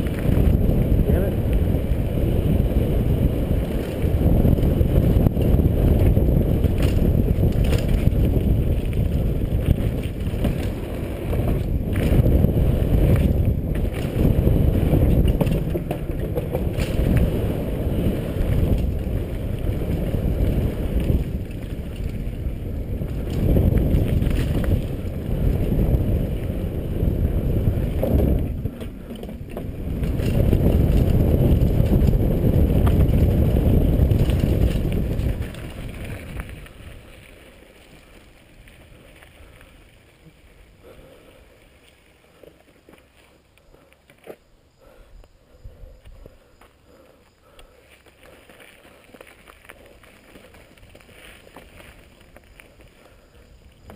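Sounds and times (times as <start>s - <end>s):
wind buffeting: 0.0s - 42.4s
bike rattling over bumps: 0.0s - 53.9s
tyres on dirt: 0.0s - 53.9s.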